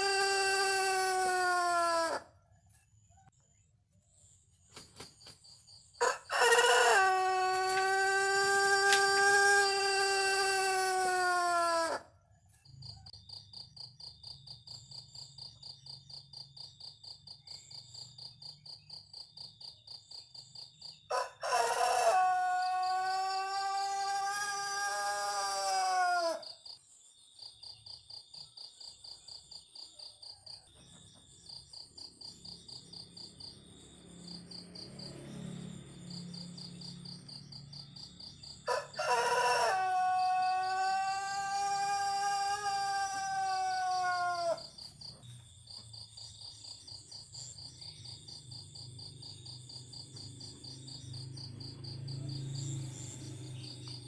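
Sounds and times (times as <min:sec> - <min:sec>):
rooster crowing: 0:00.0 - 0:02.3, 0:06.0 - 0:12.1, 0:21.1 - 0:26.6, 0:38.2 - 0:44.8
insects chirping: 0:00.0 - 0:54.0.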